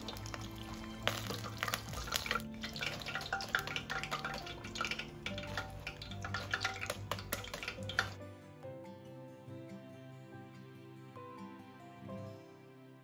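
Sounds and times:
frying oil crackling: 0.0s - 8.2s
soft background music: 0.0s - 13.0s.

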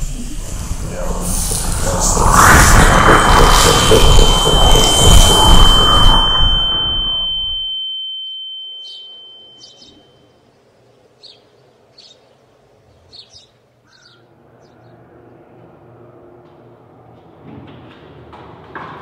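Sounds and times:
loud crash: 0.3s - 7.6s
high ringing tone: 1.4s - 10.5s
faint bird chirps: 8.7s - 15.0s.

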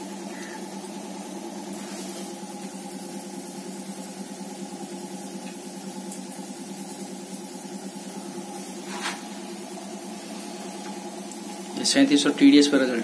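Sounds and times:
pump humming: 0.0s - 13.0s.

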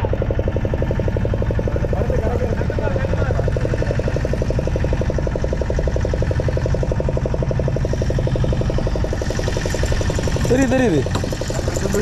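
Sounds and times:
boat diesel engine running: 0.0s - 12.0s.

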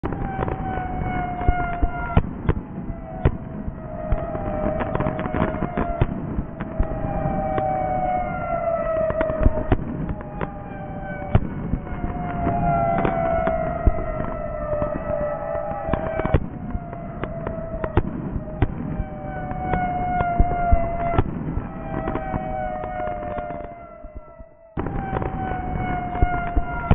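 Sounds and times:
firework whistles sliding downward: 0.0s - 2.2s, 2.8s - 26.9s
firework crackling pops and bangs: 0.0s - 7.7s, 11.3s - 15.2s, 15.8s - 19.1s, 19.7s - 24.2s, 24.8s - 26.9s.

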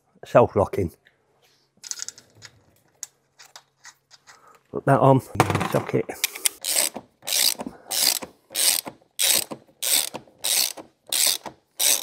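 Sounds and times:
ratchet wrench clicking: 6.6s - 12.0s.

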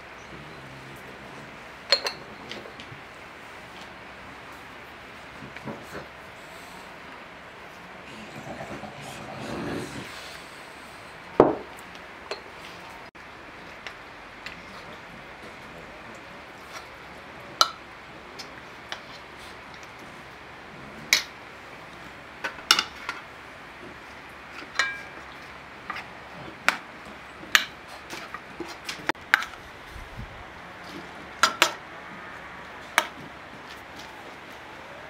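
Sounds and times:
plates and cutlery clinking: 1.9s - 2.9s, 24.6s - 26.1s.

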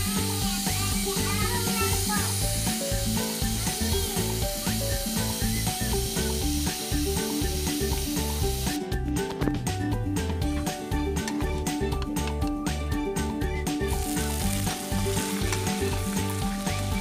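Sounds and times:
steam hissing from pressure cooker: 0.0s - 8.8s
background music: 0.0s - 17.0s.

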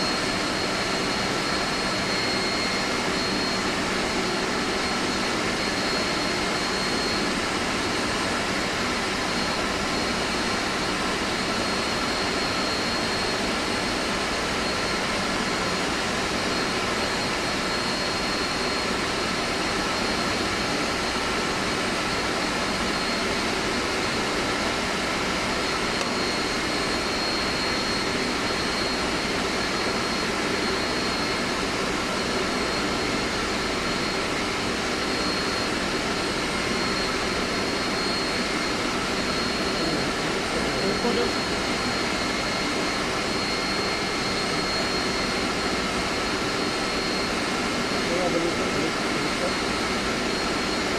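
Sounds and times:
air-conditioning machinery drone: 0.0s - 50.9s
thin high whine: 22.1s - 50.9s.

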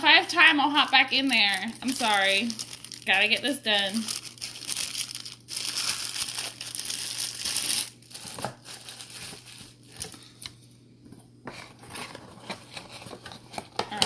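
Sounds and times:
plastic packaging crinkling: 0.0s - 10.5s.

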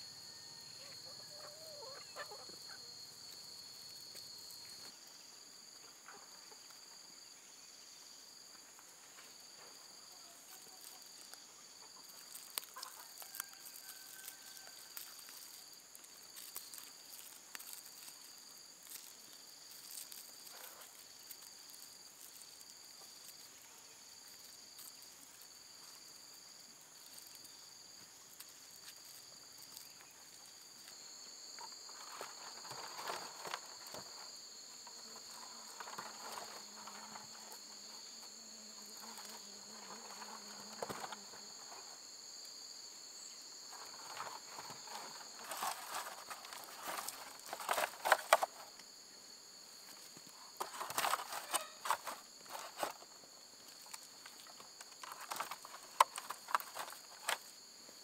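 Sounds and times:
insects trilling and buzzing: 0.0s - 58.0s
clicks and rustles of roots handled: 10.4s - 26.2s, 31.6s - 37.7s, 43.7s - 48.9s, 49.8s - 58.0s.

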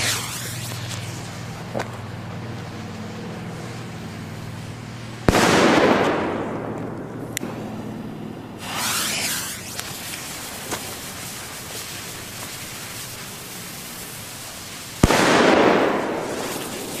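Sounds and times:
firecracker bang: 0.0s - 1.9s, 5.3s - 7.6s, 8.6s - 12.0s, 15.0s - 17.0s
fuse hissing and sparking: 0.0s - 5.1s, 8.6s - 17.0s.

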